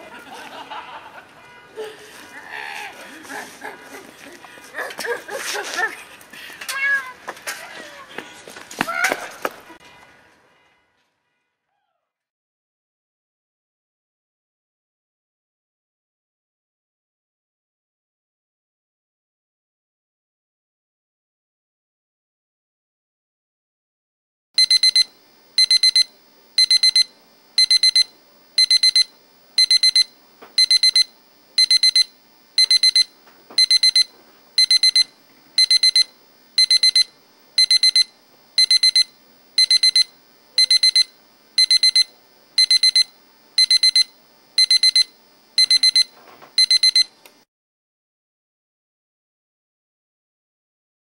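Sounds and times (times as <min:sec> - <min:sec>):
alarm clock beeping: 0:24.6 - 0:47.1.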